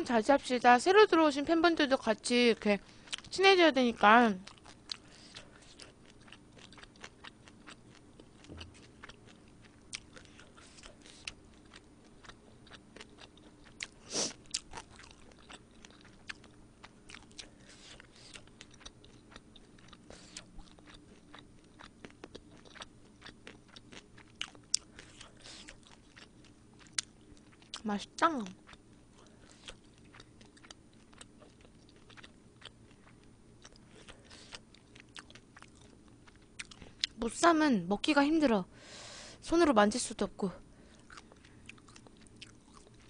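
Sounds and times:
person chewing food: 3.0s - 3.3s, 4.4s - 27.8s, 28.6s - 37.2s, 40.8s - 43.0s
crunching food: 4.4s - 27.8s, 28.6s - 37.2s.

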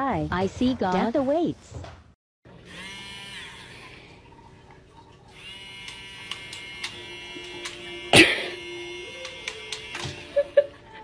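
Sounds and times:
milk frother whirring: 2.5s - 4.4s, 5.3s - 10.7s.

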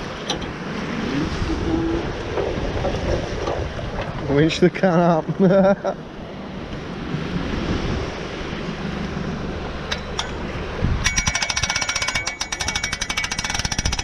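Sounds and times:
wind: 0.0s - 14.0s
winch ratchet clicking: 11.0s - 14.0s.

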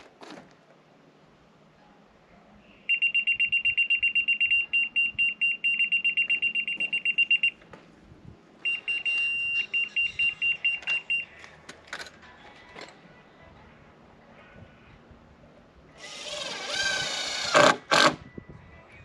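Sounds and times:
steady receiver tone: 2.8s - 7.6s, 8.6s - 11.4s
laser level receiver beeping: 2.9s - 7.6s, 8.6s - 11.3s.

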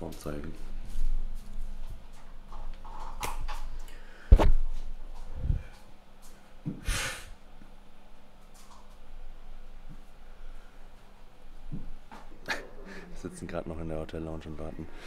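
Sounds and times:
short breathy hiss: 6.8s - 7.4s.

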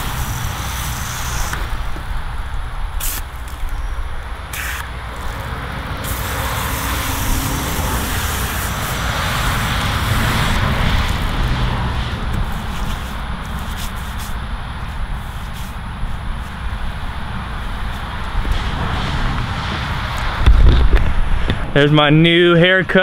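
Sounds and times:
electric hair clippers buzzing: 4.6s - 11.5s.

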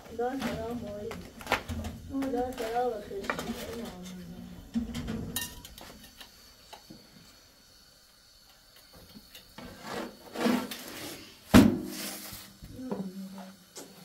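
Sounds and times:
rubbing and scraping: 9.6s - 11.2s.

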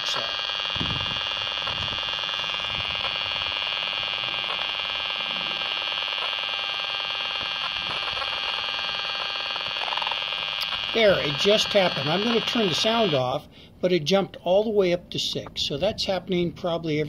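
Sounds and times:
steady electronic buzz: 0.0s - 13.4s.

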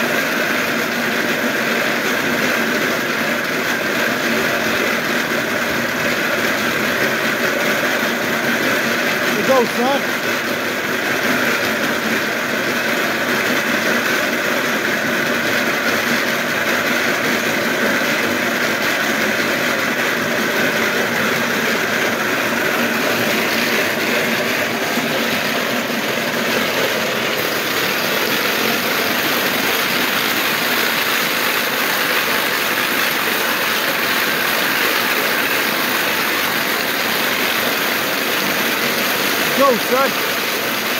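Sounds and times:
treadmill belt whirring: 5.3s - 34.0s.

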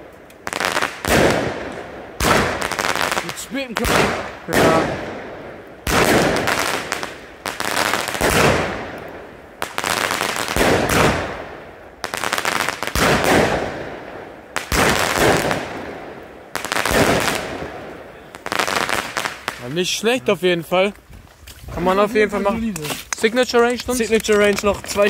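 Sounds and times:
firework burst crackle: 0.0s - 20.0s
fireworks firing: 0.0s - 20.2s.

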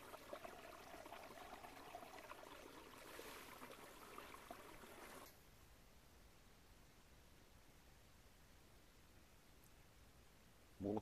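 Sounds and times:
brook trickling: 0.0s - 5.3s.

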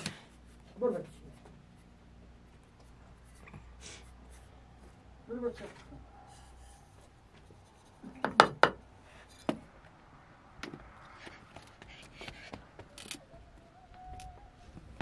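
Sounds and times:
hard objects knocking: 8.0s - 8.8s.

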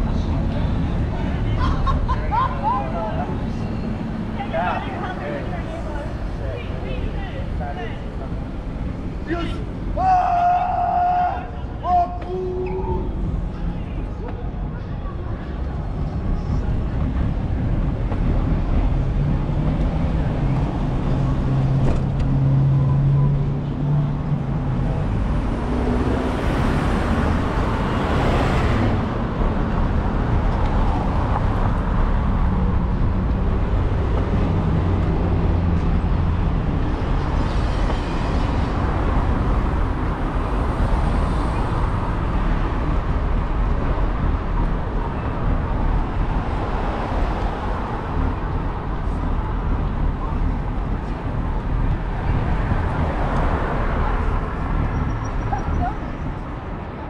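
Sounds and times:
road traffic passing: 0.0s - 57.0s.

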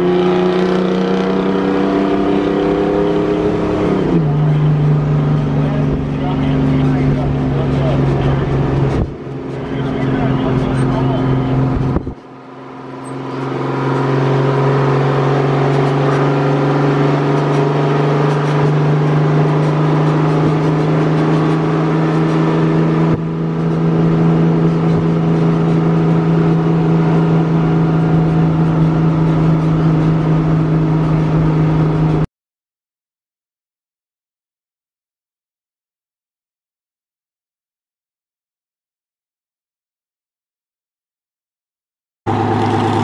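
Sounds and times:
diesel truck engine running: 3.4s - 32.2s, 42.3s - 43.0s.

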